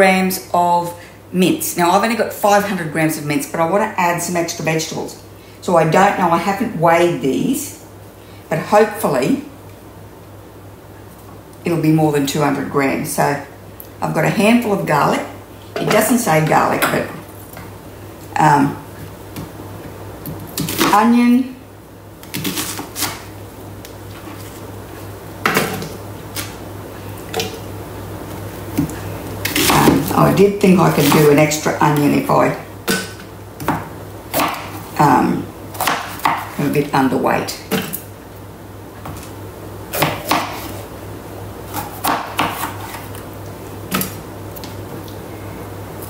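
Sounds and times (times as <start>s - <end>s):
knife chopping on board: 35.8s - 36.5s, 40.0s - 40.7s, 41.8s - 43.0s
knife chopping on plastic board: 41.8s - 43.0s.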